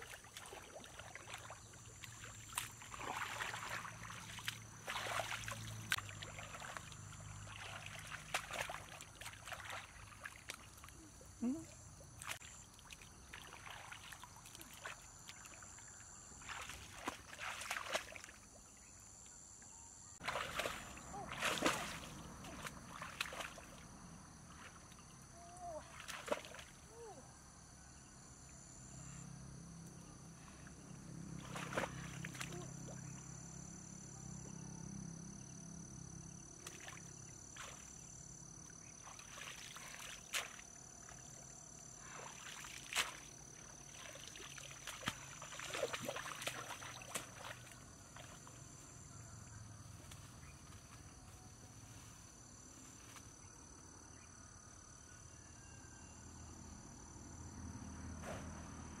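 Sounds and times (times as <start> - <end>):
water sloshing and splashing: 0.0 - 18.7, 20.2 - 26.9, 31.4 - 33.2, 36.6 - 49.0.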